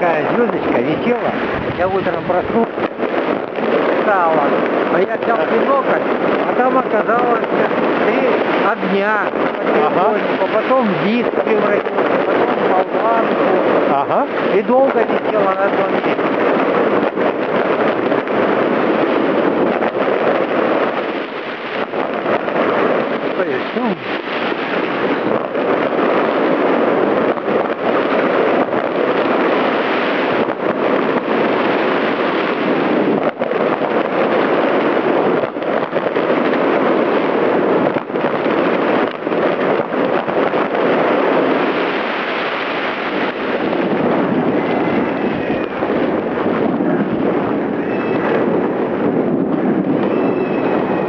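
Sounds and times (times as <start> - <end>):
wind rushing over microphone: 0.0 - 51.0.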